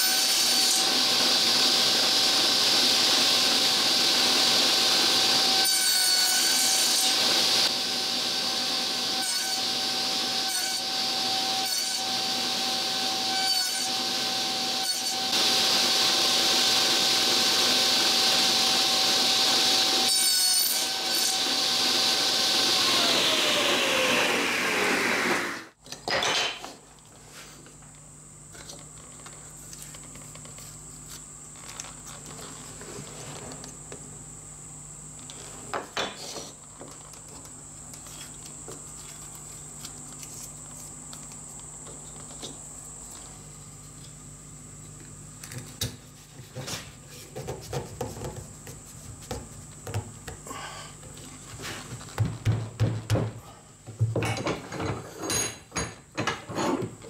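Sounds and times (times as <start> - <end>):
power saw running: 21.0 - 25.8.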